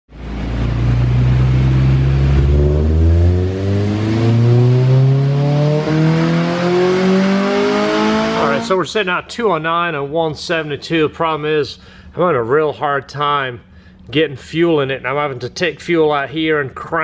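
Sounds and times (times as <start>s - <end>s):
car engine revving on dyno: 0.1s - 8.7s.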